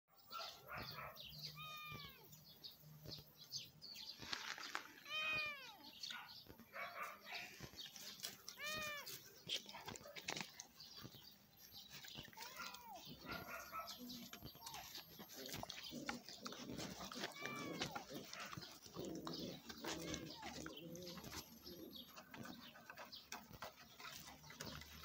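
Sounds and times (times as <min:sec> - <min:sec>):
cat meowing: 0:01.5 - 0:02.3, 0:05.0 - 0:05.9, 0:08.5 - 0:09.2, 0:17.2 - 0:18.0
light scuffling and clicks: 0:04.1 - 0:05.1, 0:06.0 - 0:12.9.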